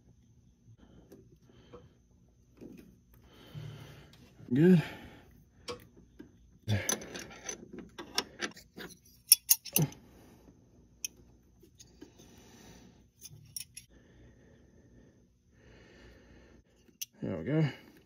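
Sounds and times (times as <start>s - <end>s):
wrench clinking on metal fitting: 6.8s - 10.0s.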